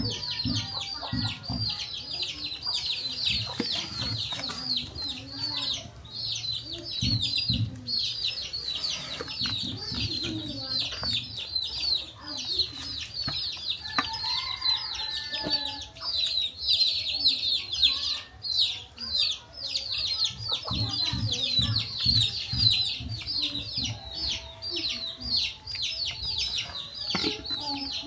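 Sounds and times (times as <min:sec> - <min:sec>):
lower bird calls or clucks: 0:00.0 - 0:28.0
small birds chirping: 0:00.0 - 0:28.0.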